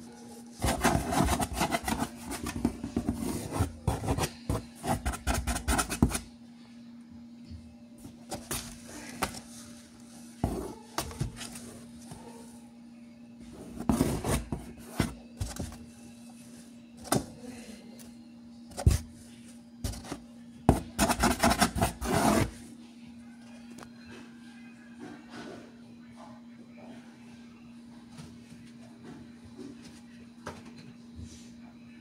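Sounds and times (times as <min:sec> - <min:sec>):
faint steady hum: 0:00.0 - 0:32.0
knocks and scraping on cardboard: 0:00.6 - 0:06.2, 0:13.6 - 0:15.8, 0:19.9 - 0:22.6.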